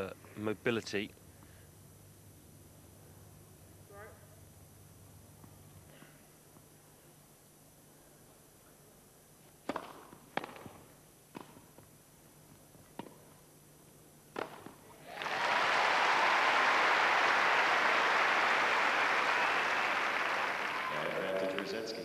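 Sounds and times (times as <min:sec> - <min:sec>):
racket striking tennis ball: 0:09.6 - 0:11.8, 0:14.3 - 0:14.8
crowd applause: 0:15.0 - 0:22.0.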